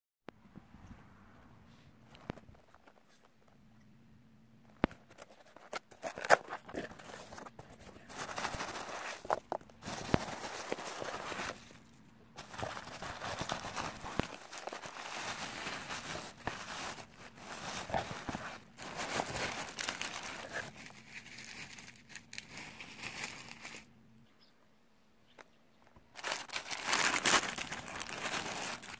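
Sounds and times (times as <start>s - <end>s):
packing material crinkling and rustling: 4.7s - 23.9s, 26.1s - 28.9s.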